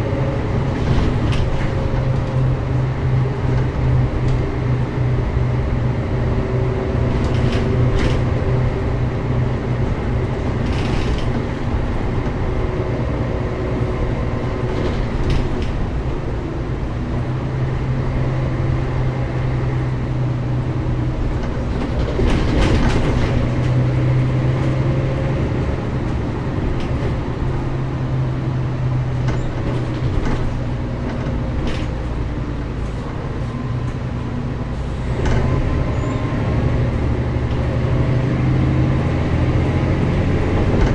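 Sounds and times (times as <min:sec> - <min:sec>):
bus diesel engine droning: 0:00.0 - 0:40.9
knocks and rattles: 0:21.3 - 0:23.9.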